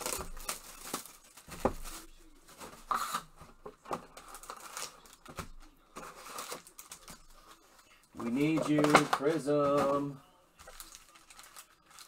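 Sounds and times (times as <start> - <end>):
cardboard rustling and knocks: 1.4 - 2.0.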